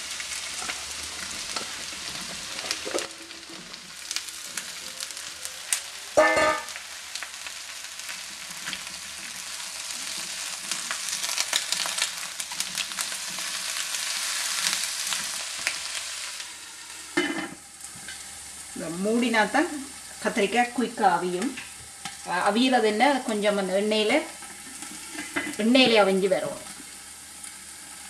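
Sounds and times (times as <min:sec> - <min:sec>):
vegetables sizzling in oil: 0:00.0 - 0:28.0
short metallic clang: 0:06.2 - 0:06.8.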